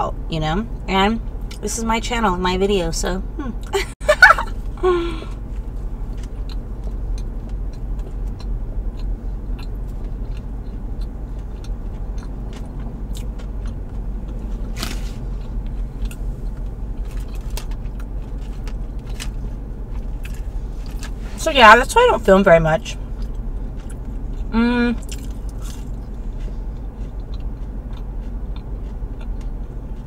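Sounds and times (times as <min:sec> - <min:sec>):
low rumble of car cabin: 0:00.0 - 0:30.0
close-up chewing: 0:05.6 - 0:21.2, 0:23.0 - 0:30.0.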